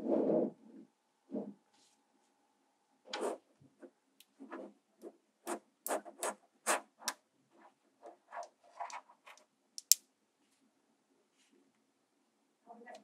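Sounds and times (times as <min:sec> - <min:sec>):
magnetic balls clicking: 0:09.8 - 0:10.0.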